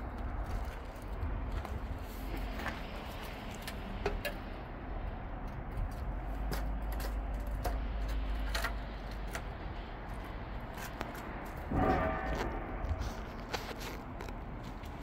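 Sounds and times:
footsteps crunching on gravel: 0.0s - 3.8s
steady low rumble: 0.0s - 15.0s.

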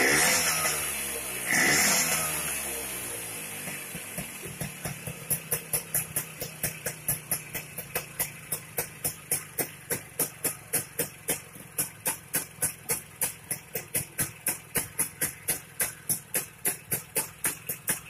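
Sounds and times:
scooter engine idling: 0.0s - 18.0s.

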